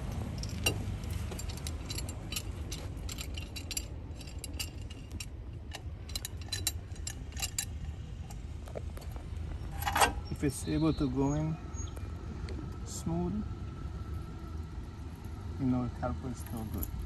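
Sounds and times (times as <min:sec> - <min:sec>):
metallic tool clicks and clinks: 0:00.1 - 0:08.4.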